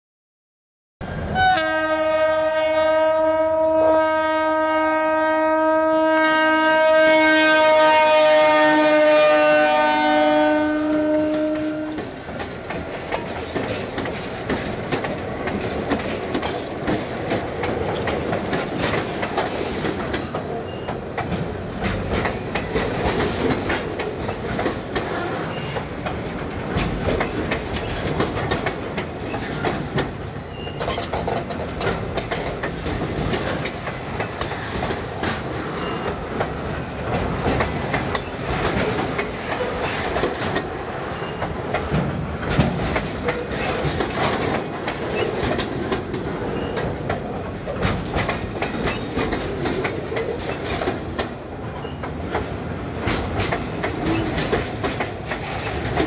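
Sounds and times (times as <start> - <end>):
locomotive air horn blast: 1.3 - 12.0
clickety-clack of train wheels: 6.7 - 56.0.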